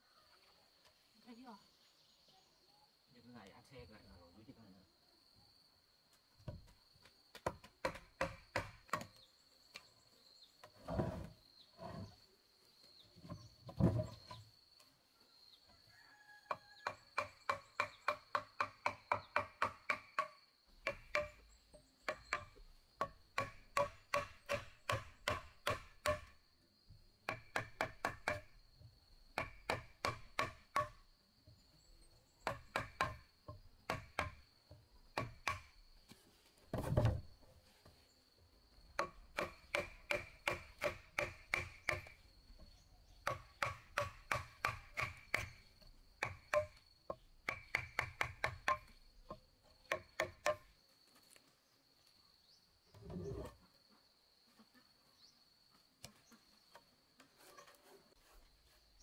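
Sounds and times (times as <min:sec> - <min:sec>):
hatchet and chisel chipping wood: 0:07.3 - 0:09.3, 0:16.5 - 0:26.4, 0:27.2 - 0:28.6, 0:29.3 - 0:31.1, 0:32.4 - 0:34.5, 0:35.1 - 0:35.8, 0:38.9 - 0:42.2, 0:43.2 - 0:50.7.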